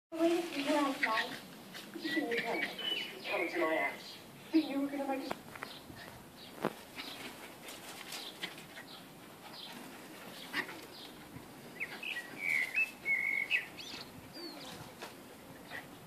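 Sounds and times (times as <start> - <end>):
bird chirping: 1.9 - 7.4, 8.1 - 14.8
bird whistled notes: 2.5 - 3.2, 11.8 - 13.7.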